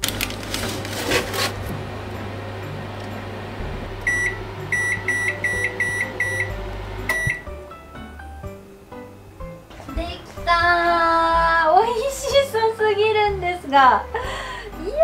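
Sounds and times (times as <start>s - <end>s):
steady low hum: 0.1s - 12.3s
microwave keypad beeps: 4.1s - 7.5s.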